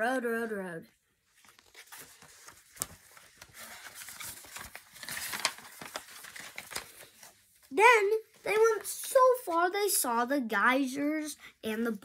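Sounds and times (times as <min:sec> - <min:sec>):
book pages rustling: 0:01.2 - 0:10.0
sharp paper flicks: 0:01.4 - 0:07.3.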